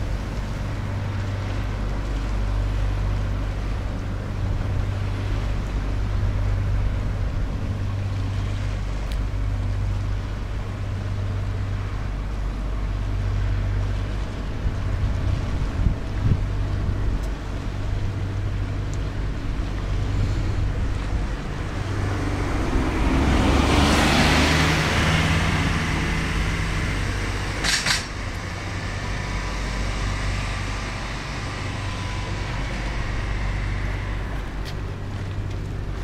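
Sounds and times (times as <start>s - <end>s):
low engine hum: 0.0s - 36.0s
vehicle passing by: 19.9s - 36.0s.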